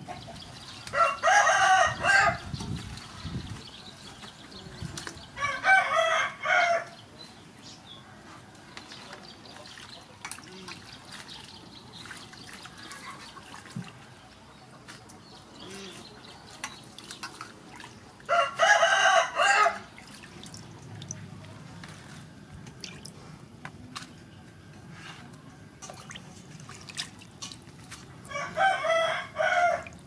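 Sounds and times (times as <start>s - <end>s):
rooster crowing: 1.0s - 2.4s, 5.4s - 7.0s, 18.3s - 19.9s, 28.3s - 29.9s
hands splashing water in a bowl: 22.0s - 23.2s, 25.8s - 28.3s.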